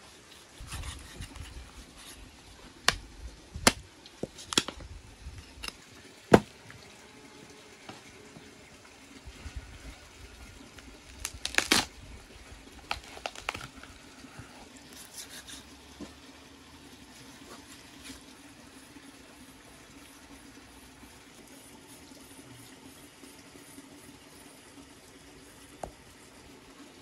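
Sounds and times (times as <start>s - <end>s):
wet squelching of flesh: 11.0s - 12.0s.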